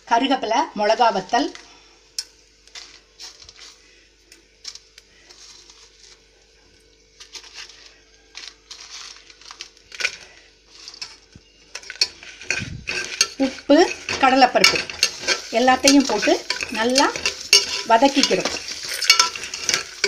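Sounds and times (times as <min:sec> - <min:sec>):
dry rustling of spices: 0:02.6 - 0:20.0
metal spatula scraping pot: 0:08.4 - 0:20.0.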